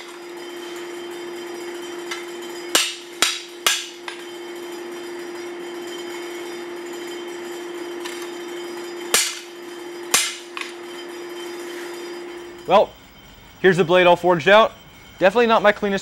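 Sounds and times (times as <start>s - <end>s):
steady hum: 0.0s - 16.0s
hammer clanging on anvil: 1.7s - 7.2s, 8.0s - 12.6s.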